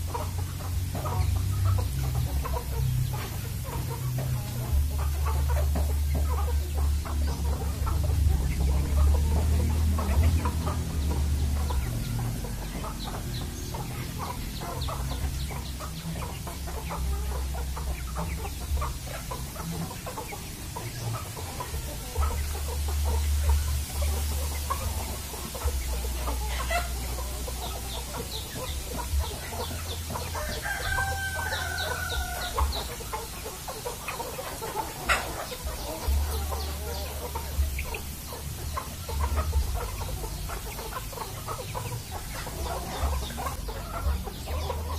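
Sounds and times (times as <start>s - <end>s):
chickens clucking: 0.0s - 44.9s
rooster crowing: 30.2s - 32.8s.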